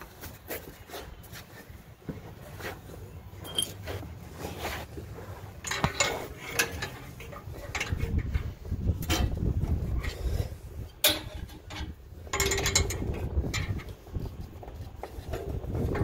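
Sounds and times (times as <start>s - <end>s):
low rumbling handling noise: 1.8s - 16.0s
metallic clinks of hand tools: 3.4s - 3.9s.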